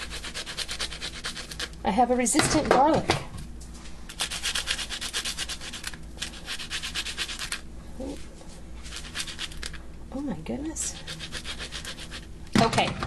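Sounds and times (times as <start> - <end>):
garlic scraping on toasted bread: 0.0 - 1.8, 4.1 - 7.6, 8.8 - 9.8, 11.0 - 12.3.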